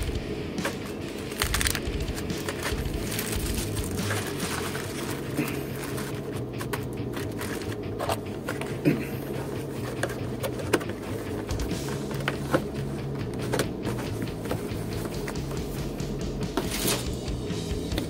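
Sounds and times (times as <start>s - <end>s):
plastic parts clicking and tapping: 0.0s - 3.4s, 9.8s - 15.5s.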